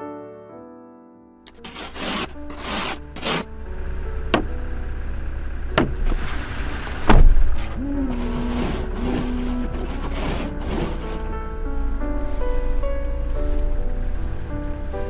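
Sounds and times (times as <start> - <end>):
soft music: 0.1 - 15.0
windshield wipers sweeping: 1.5 - 3.6, 5.7 - 11.4
truck engine idling: 1.5 - 15.0.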